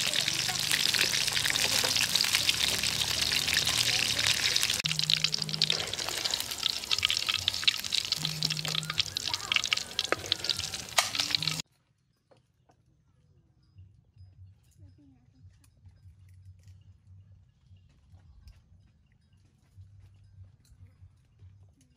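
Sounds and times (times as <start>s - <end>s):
fish frying in hot oil: 0.0s - 11.6s.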